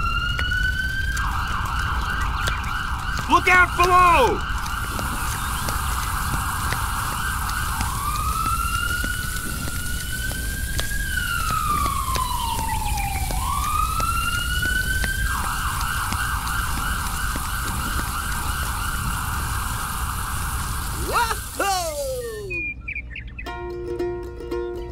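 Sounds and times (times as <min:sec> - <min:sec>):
siren-like wailing tone: 0:00.0 - 0:22.7
steady hiss: 0:04.6 - 0:22.6.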